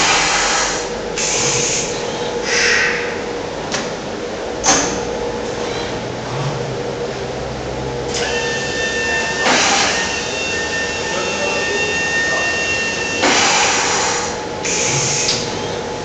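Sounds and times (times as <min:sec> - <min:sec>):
robot arm drives whining: 0:08.1 - 0:15.9.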